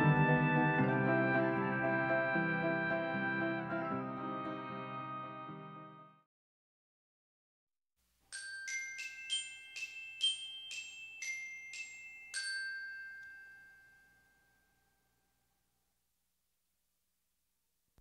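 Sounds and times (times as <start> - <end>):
bell-like mallet percussion jingle: 8.3 - 15.4.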